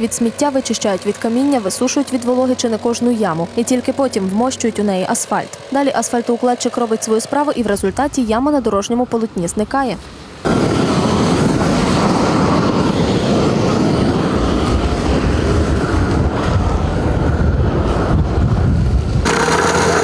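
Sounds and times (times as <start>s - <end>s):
small petrol engine running: 0.0s - 7.8s, 19.2s - 20.0s
gas torch flame rushing: 10.4s - 20.0s.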